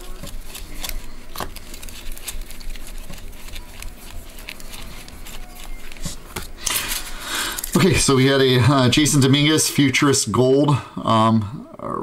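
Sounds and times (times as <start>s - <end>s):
trading cards clicking and rustling: 0.0s - 8.2s.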